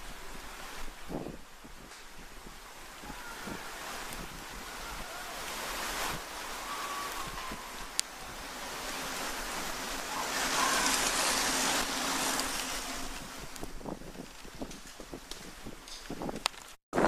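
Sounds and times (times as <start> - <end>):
wind rushing: 0.0 - 17.0.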